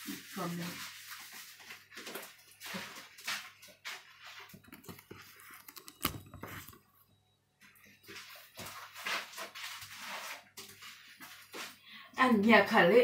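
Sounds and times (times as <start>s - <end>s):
camera handling rustling: 4.5s - 6.9s.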